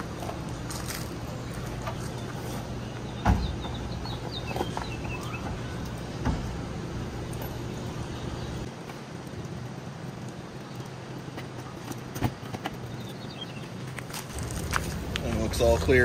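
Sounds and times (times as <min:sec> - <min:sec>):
bird chirps: 0:01.4 - 0:06.1, 0:12.9 - 0:13.8.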